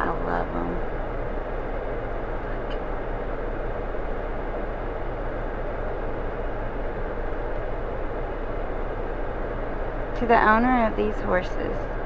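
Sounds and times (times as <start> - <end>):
car engine inside cabin: 0.0 - 12.0.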